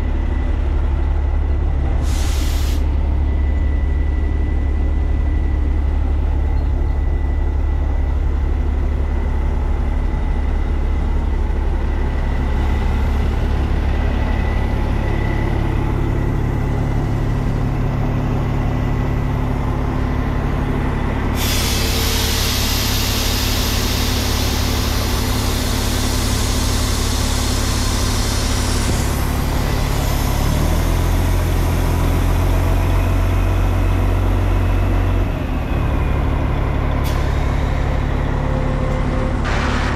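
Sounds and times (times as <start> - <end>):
diesel truck engine running: 0.0 - 39.9
loud air hiss: 2.0 - 2.9, 21.3 - 30.4.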